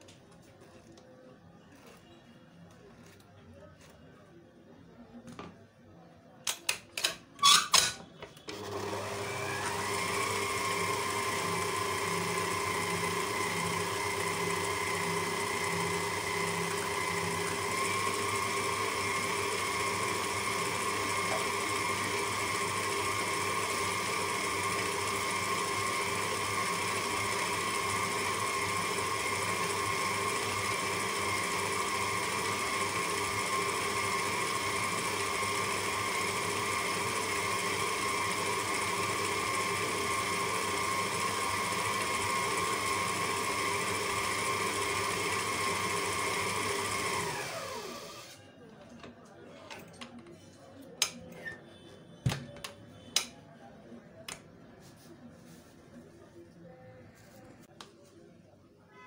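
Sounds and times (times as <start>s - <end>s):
electric stand mixer whirring: 8.5s - 48.4s.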